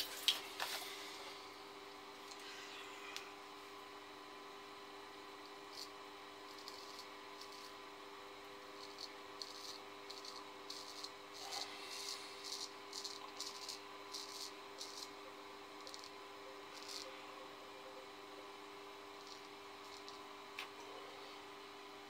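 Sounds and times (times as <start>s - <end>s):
steady low hum: 0.0s - 22.0s
razor scraping stubble: 5.7s - 7.8s, 8.8s - 15.2s.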